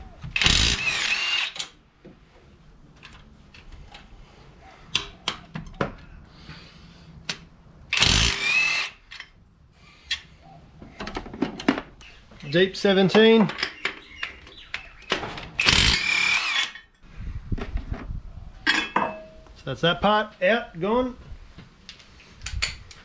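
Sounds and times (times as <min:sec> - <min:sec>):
cordless power tool whirring: 0:00.3 - 0:01.7, 0:07.9 - 0:09.0, 0:15.6 - 0:16.8.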